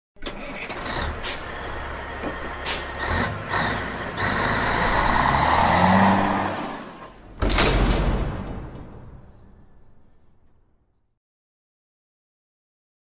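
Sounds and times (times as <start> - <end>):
diesel truck rumbling: 0.2 - 7.6
air brakes hissing: 1.1 - 1.7, 2.5 - 3.2.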